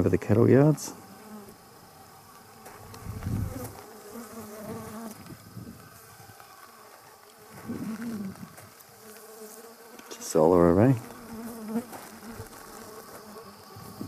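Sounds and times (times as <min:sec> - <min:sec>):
flies buzzing: 0:00.0 - 0:14.0.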